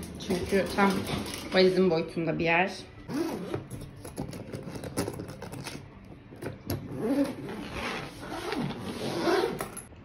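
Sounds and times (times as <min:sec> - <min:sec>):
suitcase zipper rasping open: 0:03.1 - 0:05.9, 0:06.7 - 0:09.9
clicks and scrapes of suitcase: 0:03.2 - 0:05.8.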